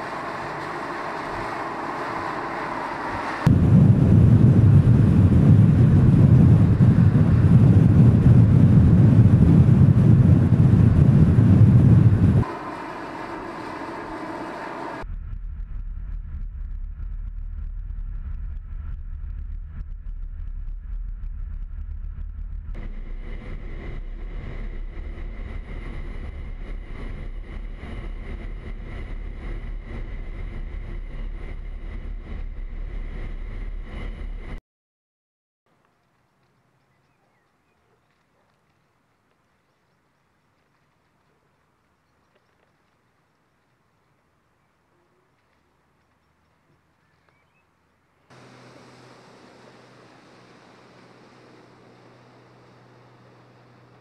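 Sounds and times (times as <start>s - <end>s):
low engine drone: 0.0s - 34.6s, 48.2s - 54.0s
road and wind noise: 0.0s - 34.6s, 35.7s - 54.0s.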